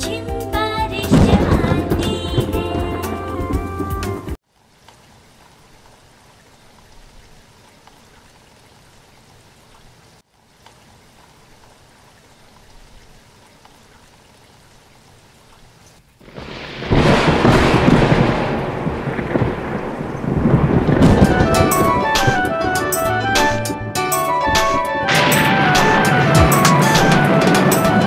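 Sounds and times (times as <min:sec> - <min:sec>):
rain hissing: 0:00.0 - 0:28.0
thunder clap rumbling: 0:00.7 - 0:04.3, 0:16.2 - 0:28.0.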